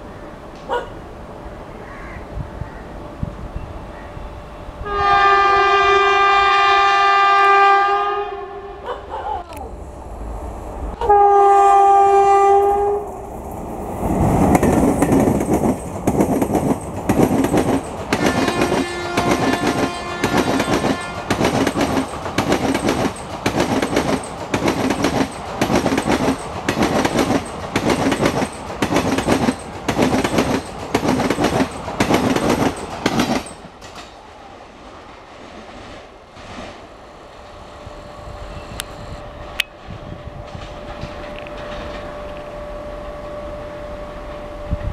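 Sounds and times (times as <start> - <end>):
train horn: 4.2 - 8.9, 11.0 - 13.2, 18.1 - 21.6
wheels clacking over rail joints: 13.6 - 34.4, 40.5 - 42.5.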